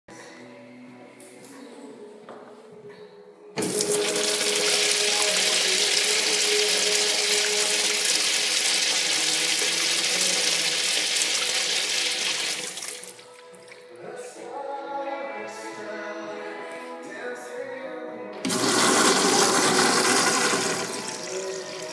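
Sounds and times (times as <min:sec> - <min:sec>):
urinal flushing: 0:03.6 - 0:13.3, 0:18.4 - 0:21.9.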